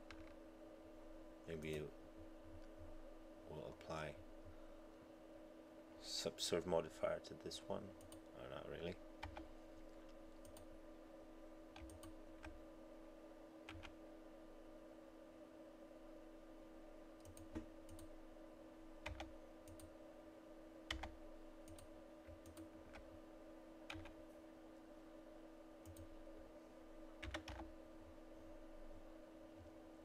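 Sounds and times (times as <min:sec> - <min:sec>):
steady low hum: 0:00.0 - 0:30.0
computer keyboard key presses: 0:11.8 - 0:12.6, 0:19.0 - 0:19.9, 0:20.9 - 0:21.1, 0:23.9 - 0:24.2, 0:27.2 - 0:27.7.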